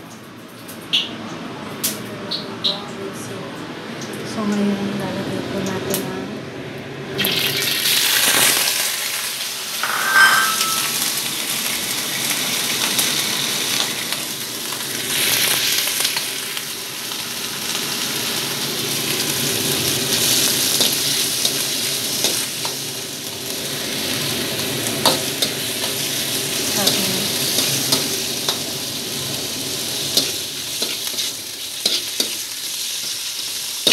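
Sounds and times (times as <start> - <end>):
pork sizzling in wok: 7.2 - 33.9
metal spatula scraping pan: 9.8 - 11.0.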